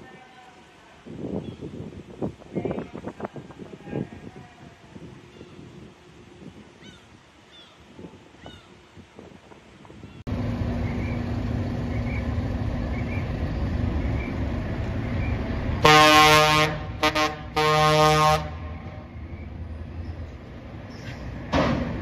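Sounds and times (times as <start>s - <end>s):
truck engine running: 10.3s - 15.9s
truck air horn: 15.8s - 18.7s.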